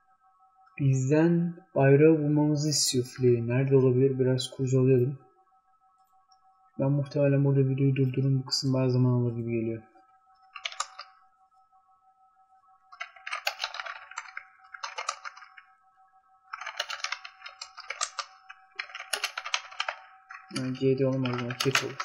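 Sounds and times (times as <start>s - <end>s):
keyboard typing: 10.4s - 11.2s, 12.9s - 15.7s, 16.5s - 22.0s.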